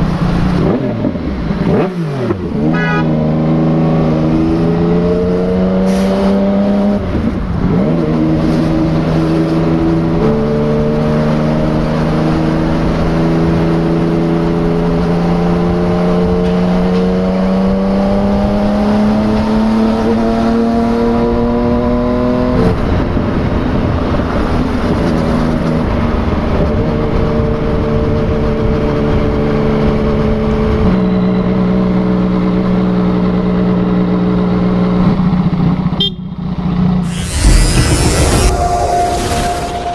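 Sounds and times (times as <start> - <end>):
motorcycle engine revving: 0.3 - 22.0, 37.0 - 39.9.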